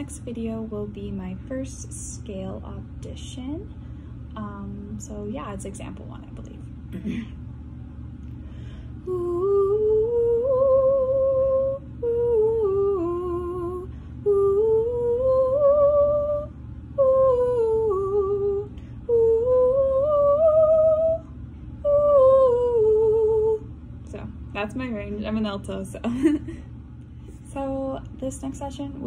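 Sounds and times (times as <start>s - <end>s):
woman singing vocal scales: 9.0s - 23.7s.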